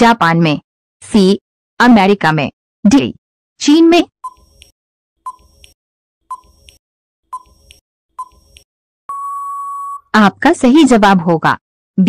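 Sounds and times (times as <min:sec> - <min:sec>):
long steady beep: 0:09.1 - 0:10.1
short beeps: 0:09.1 - 0:10.1.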